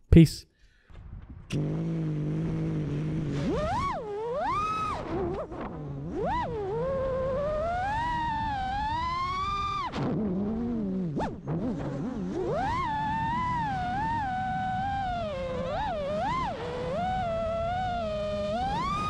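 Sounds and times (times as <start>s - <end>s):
drone motors whining: 1.5s - 9.9s, 12.5s - 19.0s.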